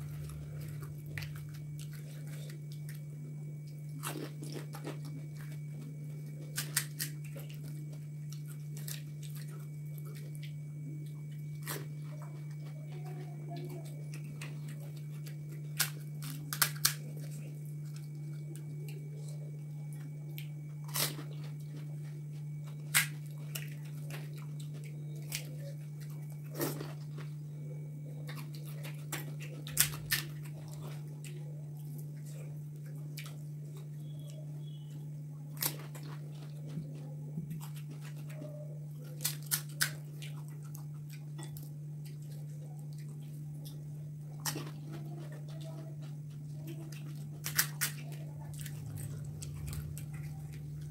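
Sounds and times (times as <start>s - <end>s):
chewing: 0.0s - 50.9s
steady low hum: 0.0s - 50.9s
crisp shells cracking and crunching: 3.7s - 10.6s, 14.1s - 19.3s, 20.0s - 22.0s, 22.6s - 27.4s, 28.2s - 34.8s, 35.5s - 36.8s, 37.4s - 50.9s.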